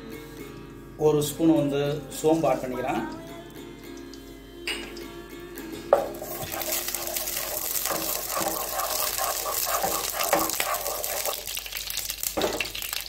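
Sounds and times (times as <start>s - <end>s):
wooden spatula stirring in pan: 5.9s - 13.0s
seeds sizzling in hot oil: 6.0s - 13.0s.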